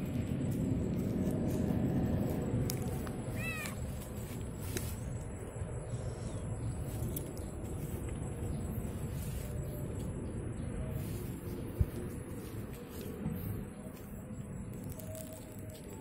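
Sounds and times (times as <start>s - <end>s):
steady low rumble: 0.0s - 16.0s
cat meowing: 3.3s - 3.8s.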